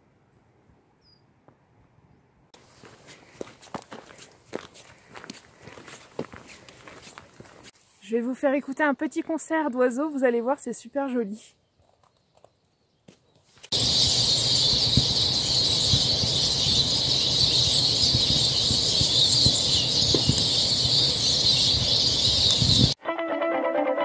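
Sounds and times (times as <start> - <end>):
chorus of small birds calling: 13.7 - 23.0.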